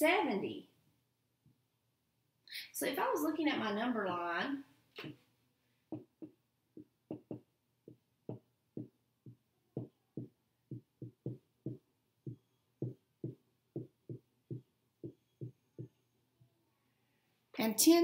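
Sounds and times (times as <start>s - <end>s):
marker tapping on whiteboard: 5.9s - 16.0s.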